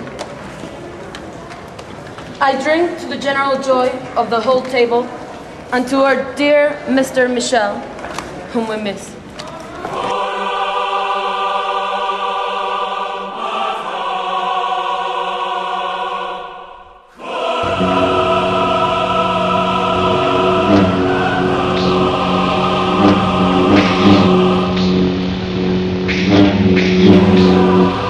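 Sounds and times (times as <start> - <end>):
choir singing held chords: 9.8 - 28.0.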